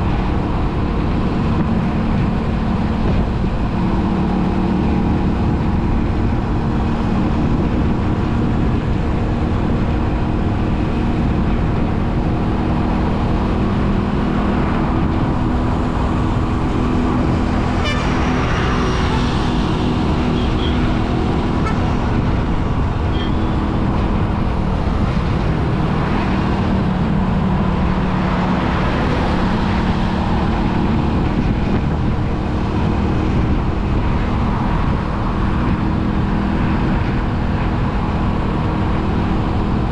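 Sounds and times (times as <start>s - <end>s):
surrounding traffic: 0.0s - 39.9s
vehicle engine and road noise: 0.0s - 39.9s
short horn toots: 17.8s - 18.2s.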